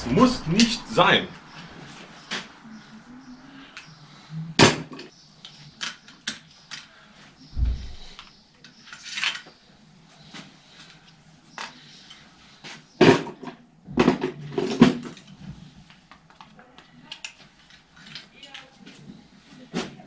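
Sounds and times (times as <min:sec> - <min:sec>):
dull thud: 0:07.6 - 0:08.2.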